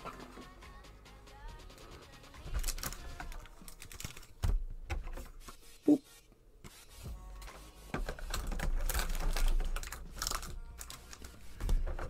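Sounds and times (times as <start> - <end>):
packs rustling: 8.2 - 12.0.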